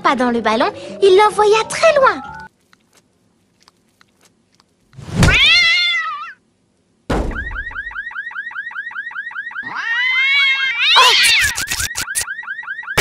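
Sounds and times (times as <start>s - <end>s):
cartoon thud: 5.1s - 5.5s, 7.1s - 7.8s
car alarm warbling: 7.1s - 9.8s, 11.2s - 13.0s.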